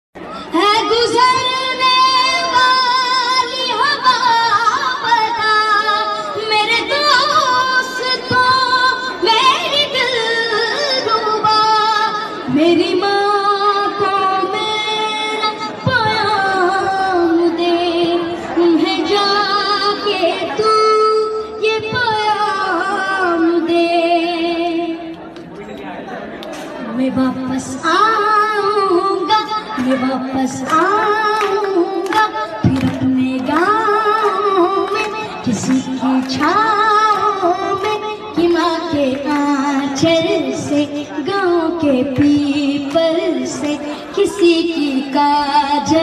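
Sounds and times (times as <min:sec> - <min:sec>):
boy singing into a microphone: 0:00.3 - 0:25.2, 0:26.8 - 0:46.0.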